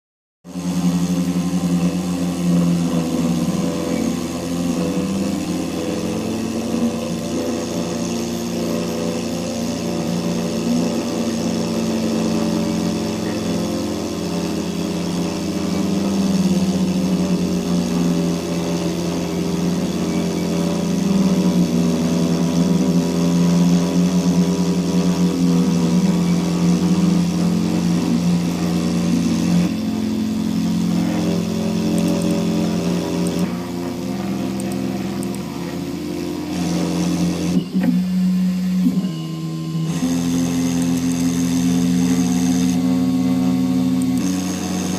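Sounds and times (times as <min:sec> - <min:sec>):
router spindle motor humming: 0:00.5 - 0:44.9.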